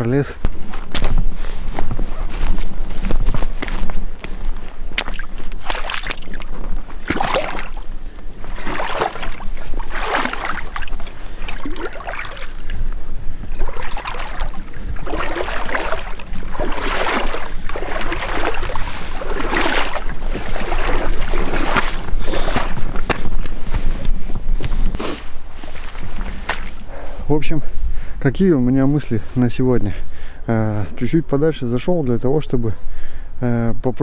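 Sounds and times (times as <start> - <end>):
footsteps splashing through water: 2.4 - 23.4, 25.7 - 26.9.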